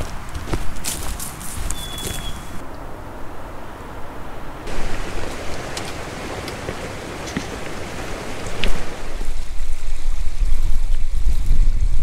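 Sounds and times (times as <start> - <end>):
wind buffeting microphone: 0.0 - 12.0
creek water rushing over rocks: 4.7 - 9.5.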